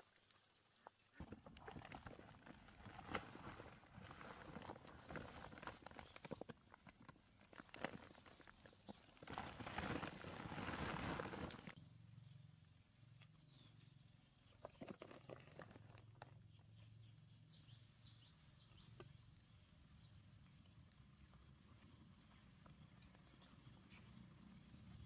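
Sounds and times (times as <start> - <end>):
plastic sack and plants rustling: 1.1 - 11.8
bird chirping: 11.7 - 14.8, 16.3 - 20.6.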